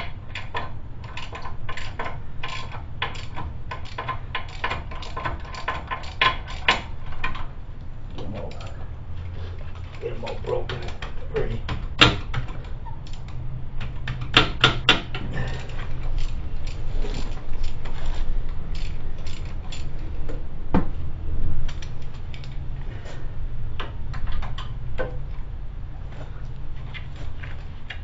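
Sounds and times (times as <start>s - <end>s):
ratchet and metal tools clicking: 0.0s - 7.5s, 8.3s - 8.8s, 9.6s - 20.4s, 21.7s - 22.7s
steady low hum: 0.0s - 28.0s.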